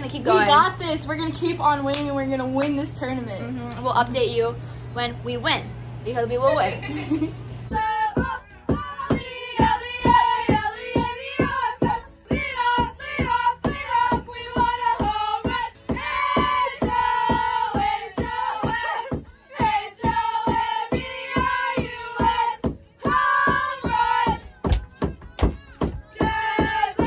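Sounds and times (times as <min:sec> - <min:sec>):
song with female vocal: 0:07.7 - 0:27.0.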